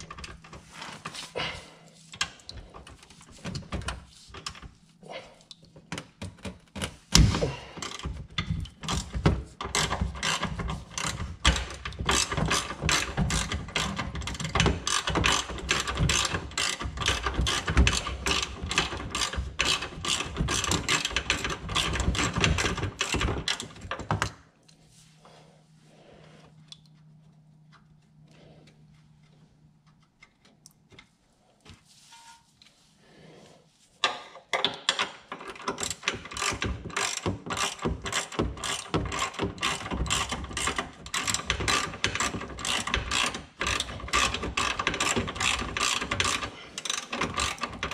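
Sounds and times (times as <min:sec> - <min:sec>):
hand ratchet clicking rapidly: 0:08.9 - 0:23.7, 0:35.5 - 0:47.9
faint handling sounds: 0:24.5 - 0:34.5.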